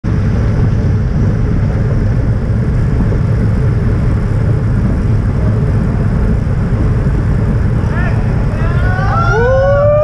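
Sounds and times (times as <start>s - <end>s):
road noise: 0.0s - 10.0s
wind rumble on microphone: 0.0s - 10.0s.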